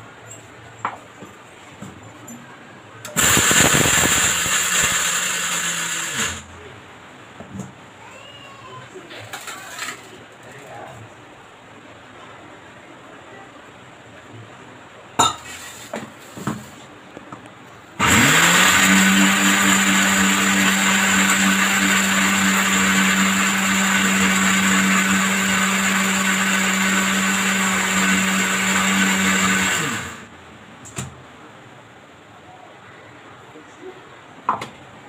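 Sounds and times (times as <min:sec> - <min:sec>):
mixer grinder motor running: 0:03.2 - 0:06.5, 0:18.0 - 0:30.3.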